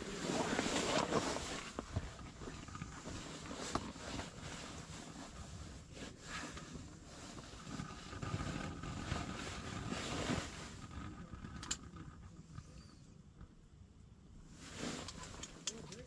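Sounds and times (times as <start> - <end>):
wind gusting against fabric walls: 0.0 - 12.6.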